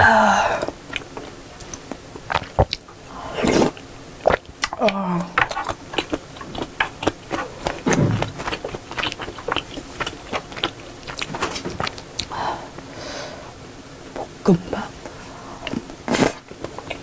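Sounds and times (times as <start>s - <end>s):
chewing and wet mouth clicks: 0.6s - 2.9s, 4.2s - 12.3s.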